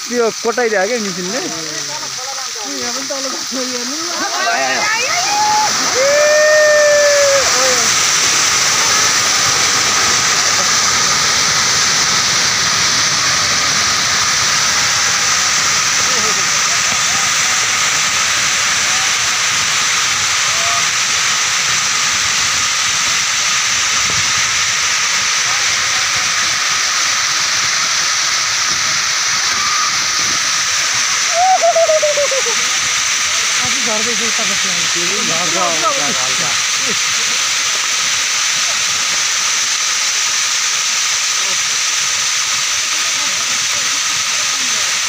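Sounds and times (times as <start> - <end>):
landslide debris rushing: 0.1 - 39.9
debris and mud rushing: 4.3 - 22.1
person calling out: 31.3 - 32.6.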